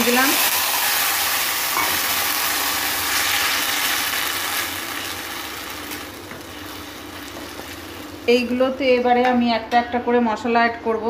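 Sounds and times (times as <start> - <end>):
paste sizzling in hot oil: 0.0 - 8.6.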